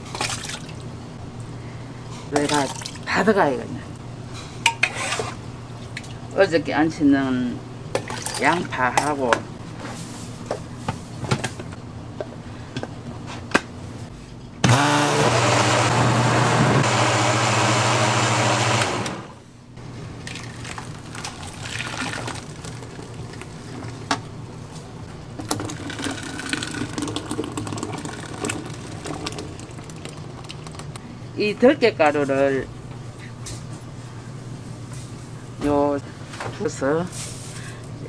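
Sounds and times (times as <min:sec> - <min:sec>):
blender motor running: 0:14.6 - 0:19.4.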